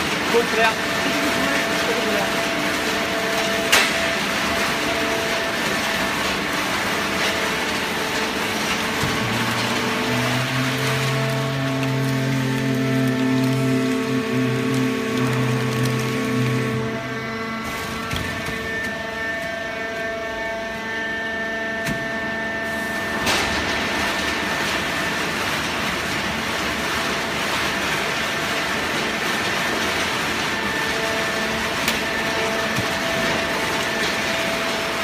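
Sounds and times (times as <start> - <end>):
baler motor humming: 6.9 - 19.6.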